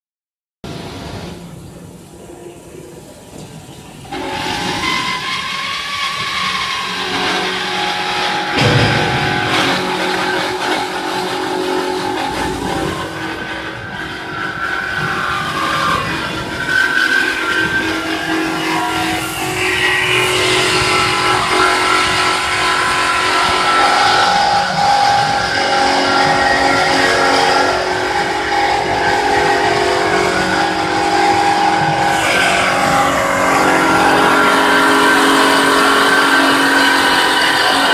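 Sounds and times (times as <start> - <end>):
band saw hum: 4.1 - 37.9
band saw whine with hiss: 4.1 - 37.9.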